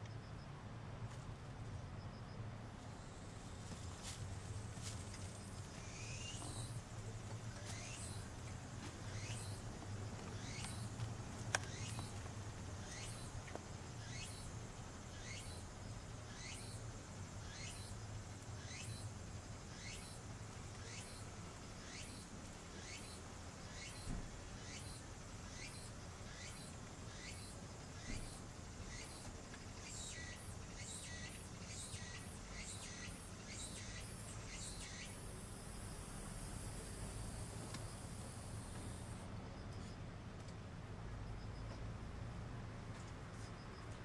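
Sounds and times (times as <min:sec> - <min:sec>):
insect chirping: 0:02.0 - 0:40.0
bird chirping: 0:09.0 - 0:09.6, 0:10.3 - 0:11.0, 0:11.6 - 0:12.2, 0:12.8 - 0:13.3, 0:22.8 - 0:35.3.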